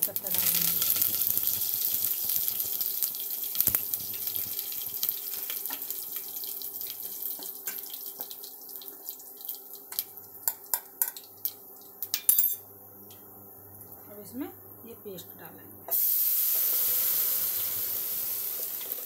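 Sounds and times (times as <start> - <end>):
oil popping and crackling: 0.0 - 11.6
leaves sizzling in hot oil: 0.0 - 12.0, 15.9 - 19.0.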